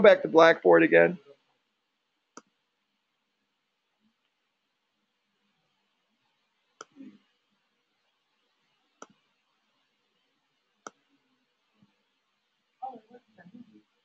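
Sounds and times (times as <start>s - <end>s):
computer mouse clicks: 9.0s - 9.2s.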